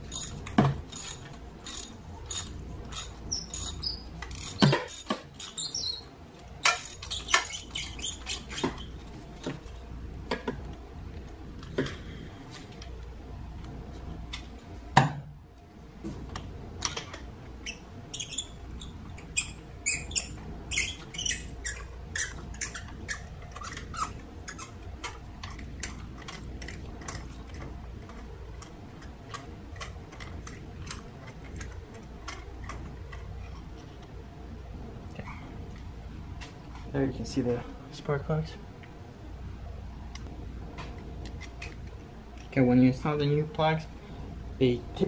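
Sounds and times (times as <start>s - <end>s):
ratchet metallic clicks: 0.1s - 5.8s.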